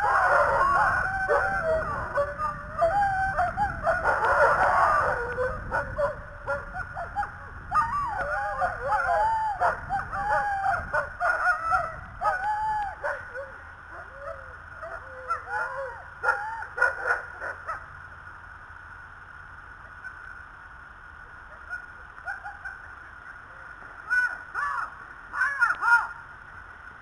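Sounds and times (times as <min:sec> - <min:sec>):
dogs yelping and howling: 0:00.0 - 0:17.9, 0:21.5 - 0:22.9.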